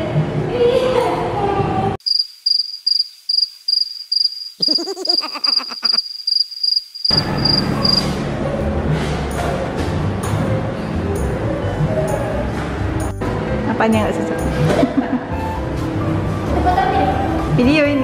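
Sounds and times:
cricket chirping: 2.0s - 8.2s.

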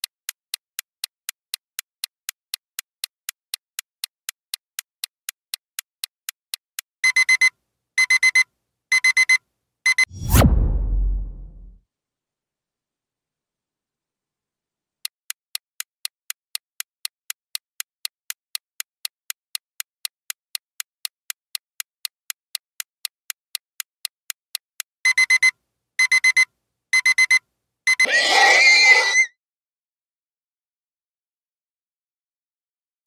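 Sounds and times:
clock ticking: 0.0s - 10.1s, 15.0s - 22.9s, 23.5s - 23.9s, 24.5s - 26.4s
horse whinny: 28.0s - 29.3s.

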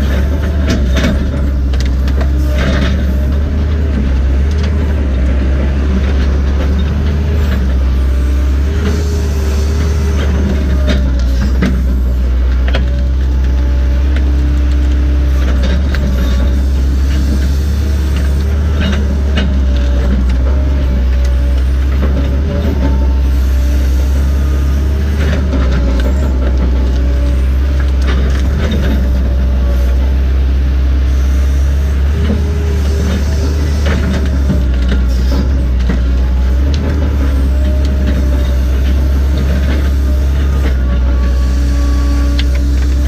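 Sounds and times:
diesel engine drone: 0.0s - 43.0s
hydraulic whines: 31.0s - 43.0s.

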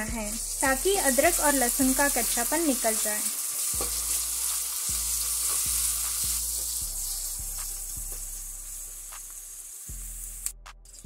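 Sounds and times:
onions sizzling in oil: 0.0s - 10.5s.

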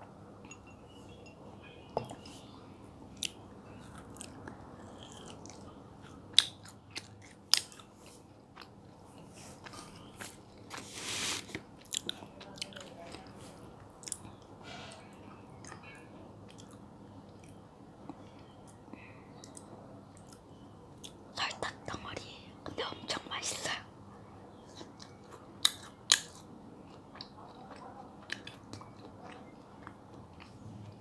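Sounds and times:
chewing soft jelly: 3.1s - 10.9s, 11.5s - 14.5s, 15.5s - 21.2s, 24.6s - 31.0s.

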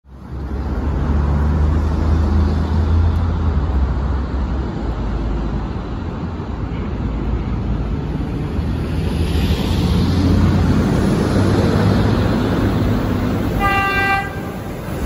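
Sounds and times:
traffic noise: 0.0s - 15.0s.

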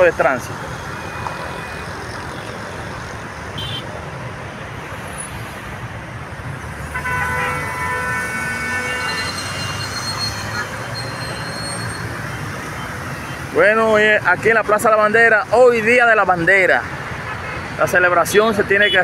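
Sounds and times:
road traffic noise: 0.0s - 19.0s
vehicle horn: 1.0s - 1.9s, 3.5s - 3.9s, 6.9s - 10.9s.

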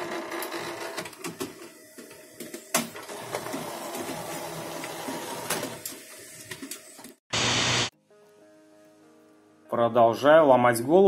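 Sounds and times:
scanner motor crackling buzz: 7.3s - 7.9s.

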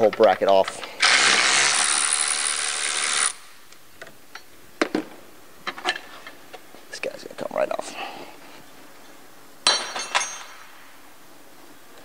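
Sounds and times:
electric ratchet running: 1.0s - 3.4s.

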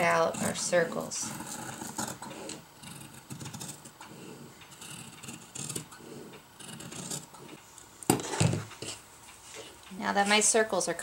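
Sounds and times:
scissors snipping fabric: 0.0s - 3.9s, 4.8s - 6.0s, 6.6s - 7.6s.

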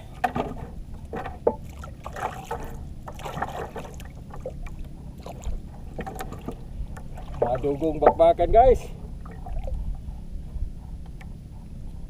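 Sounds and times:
rumble of water and wind: 0.0s - 12.0s
knocks and scuffs in boat hull: 0.2s - 4.6s, 5.2s - 8.4s.

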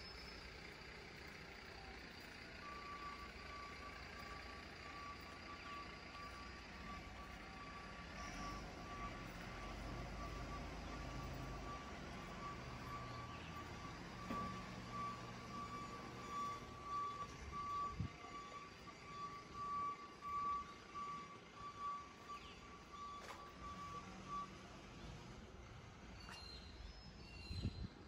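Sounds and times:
electronic warning beeper: 2.7s - 24.6s.

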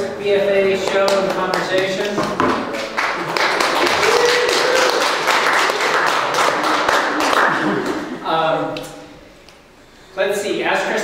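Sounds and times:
audience applauding: 0.8s - 8.2s.

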